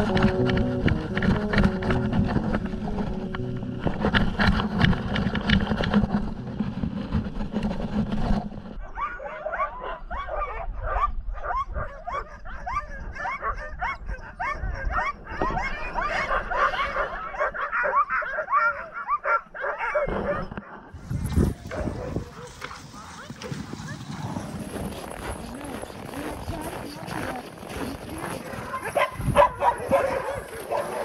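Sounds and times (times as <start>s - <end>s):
rough rushing noise: 0.0s - 8.8s
sled dogs yipping and barking: 0.0s - 31.0s.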